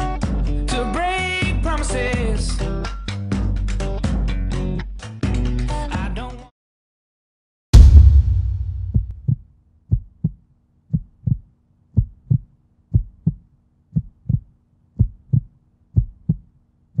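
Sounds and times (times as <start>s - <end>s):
loud boom: 7.8s - 9.3s
heartbeat thumps: 7.8s - 17.0s.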